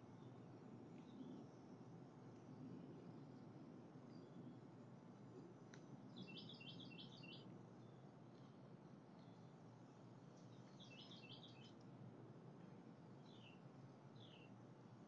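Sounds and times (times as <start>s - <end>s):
low background hum: 0.0s - 15.0s
songbird chattering: 10.8s - 11.6s.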